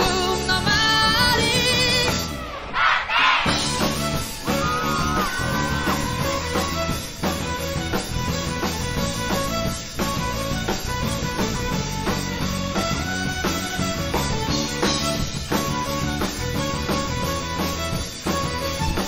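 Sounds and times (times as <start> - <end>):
live rock band playing: 0.0 - 2.7, 3.4 - 19.0.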